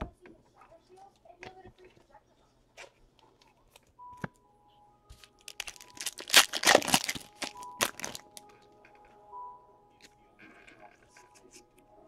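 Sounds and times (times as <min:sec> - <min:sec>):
faint background music: 0:00.0 - 0:12.0
foil pack tearing and crinkling: 0:05.4 - 0:08.4.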